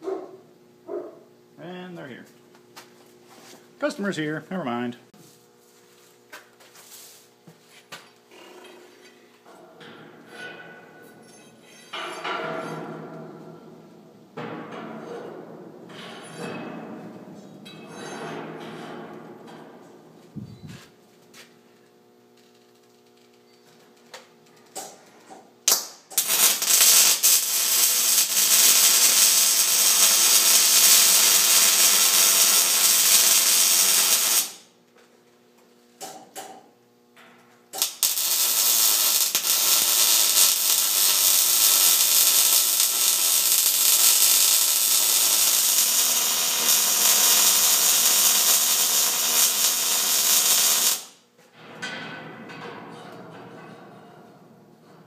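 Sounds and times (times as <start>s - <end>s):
welder arc burning: 25.6s - 34.7s, 37.8s - 51.2s.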